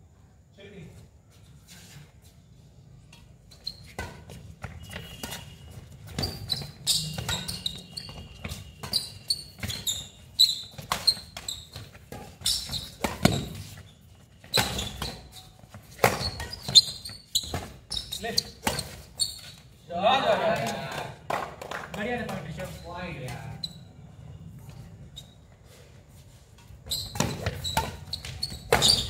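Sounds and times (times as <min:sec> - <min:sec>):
footsteps on concrete court: 0:03.0 - 0:29.0
racket hitting shuttlecock: 0:14.6 - 0:16.8, 0:27.0 - 0:29.0.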